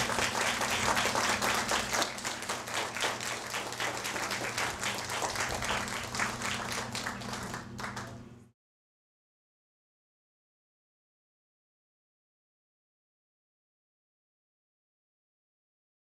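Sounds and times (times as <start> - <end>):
audience applauding: 0.0 - 8.3
low electrical hum: 0.0 - 8.5.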